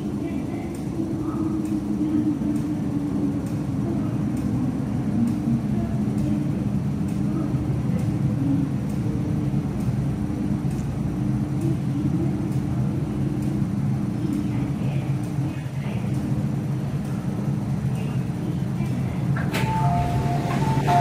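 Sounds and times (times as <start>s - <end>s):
metro train rumbling into station: 0.0s - 21.0s.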